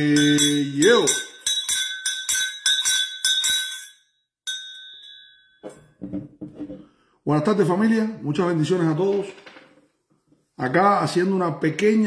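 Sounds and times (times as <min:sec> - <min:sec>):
hand bell clanging: 0:00.0 - 0:06.0.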